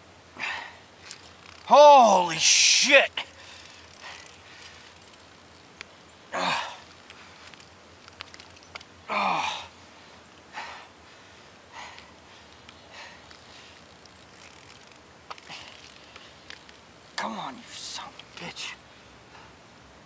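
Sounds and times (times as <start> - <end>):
man exhaling with effort: 0.4 - 0.8, 6.3 - 6.9
faint clicks: 3.5 - 6.0, 6.8 - 8.9, 11.9 - 16.8.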